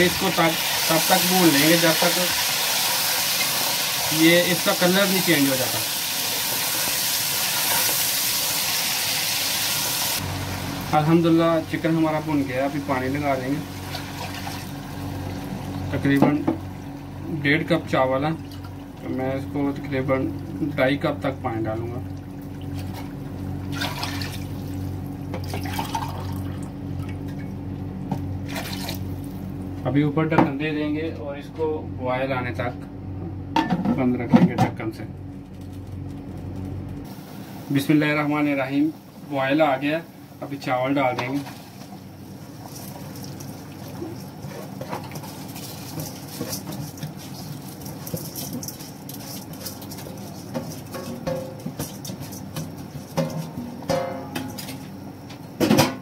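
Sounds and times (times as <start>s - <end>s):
steady low hum: 10.2s - 56.0s
water pouring into a pot: 25.5s - 26.6s.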